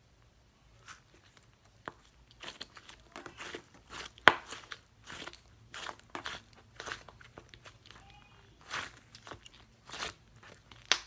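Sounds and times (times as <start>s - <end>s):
sticky slime popping and crackling: 0.8s - 11.0s
sharp slime snap: 8.7s - 11.0s.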